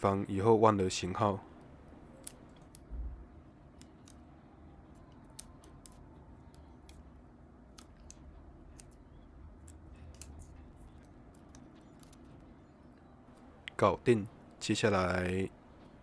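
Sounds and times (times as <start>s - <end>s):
paper sticker clicks and crackles: 5.0s - 7.1s, 7.7s - 12.4s.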